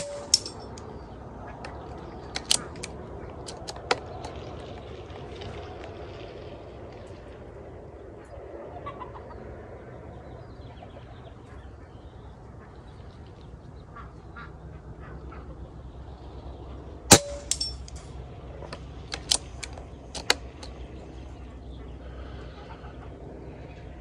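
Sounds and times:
faint metallic clanks: 0.0s - 1.8s, 17.1s - 20.8s
sharp clicks: 1.6s - 4.4s, 18.7s - 20.8s
air rifle shot: 17.1s - 17.7s.

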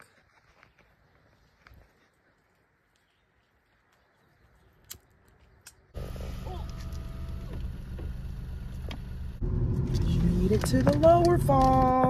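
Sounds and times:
vehicle engine rumbling: 5.9s - 12.0s.

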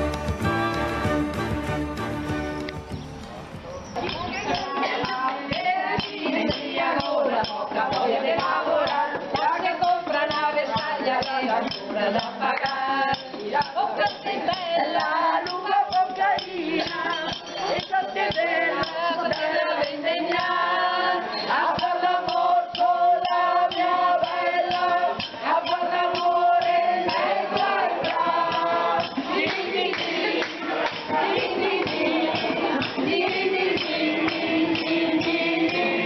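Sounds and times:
hand-clapping: 0.0s - 1.2s, 2.6s - 3.4s, 27.1s - 35.9s
group of people singing: 4.0s - 36.0s.

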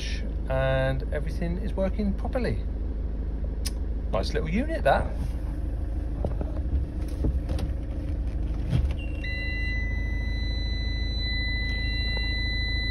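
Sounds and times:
van engine idling: 0.0s - 12.9s
high electronic warning tone: 9.0s - 12.9s.

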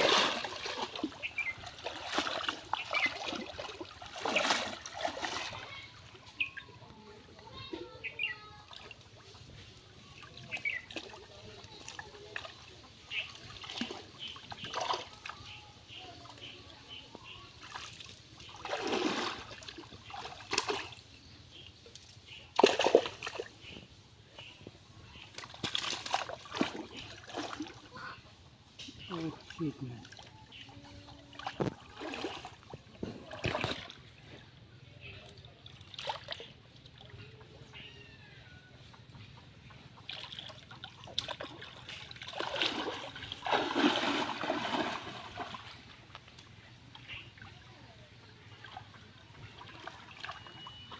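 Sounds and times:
hands splashing in muddy water: 0.0s - 6.1s, 17.6s - 21.0s, 22.5s - 23.7s, 25.2s - 27.9s, 31.4s - 34.4s, 39.8s - 47.5s
water splashing from wading: 0.0s - 21.7s, 22.3s - 24.5s, 25.1s - 50.9s.

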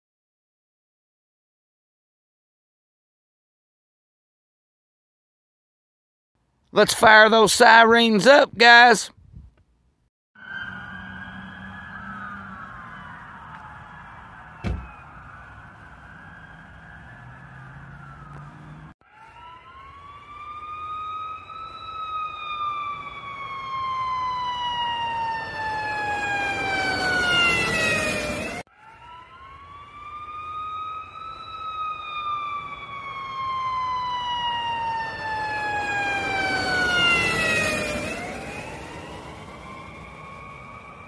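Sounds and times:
siren wailing: 10.4s - 41.0s.

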